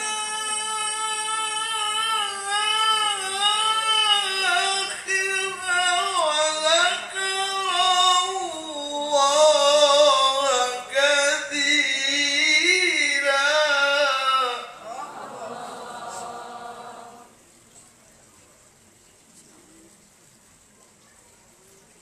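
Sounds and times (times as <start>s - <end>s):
man chanting through microphone: 0.0s - 17.3s.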